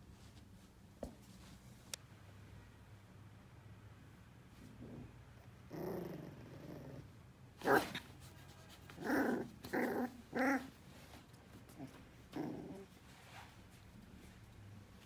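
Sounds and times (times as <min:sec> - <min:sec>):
puppy growling: 0:04.8 - 0:08.0, 0:08.9 - 0:10.8, 0:11.7 - 0:13.0.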